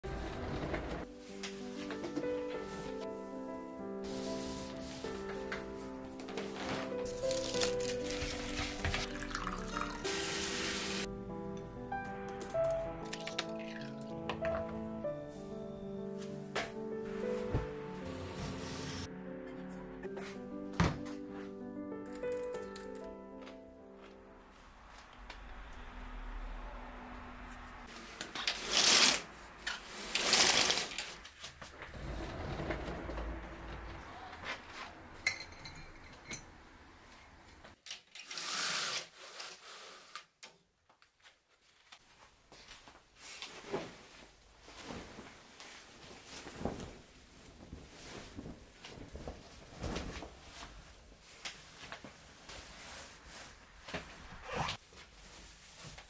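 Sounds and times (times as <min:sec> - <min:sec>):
bed linen rustling: 0:00.0 - 0:11.1, 0:15.2 - 0:19.1, 0:41.5 - 0:56.0.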